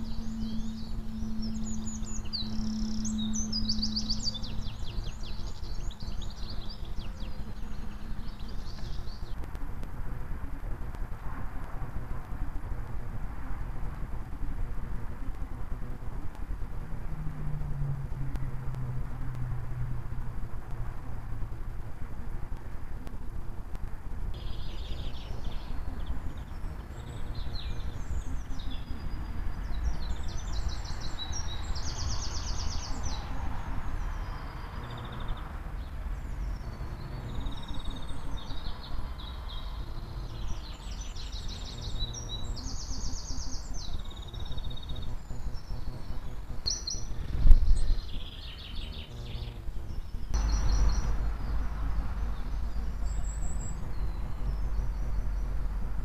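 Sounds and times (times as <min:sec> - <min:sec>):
small birds singing: 0:00.0 - 0:19.4, 0:20.0 - 0:56.0
low rumble: 0:50.3 - 0:56.0.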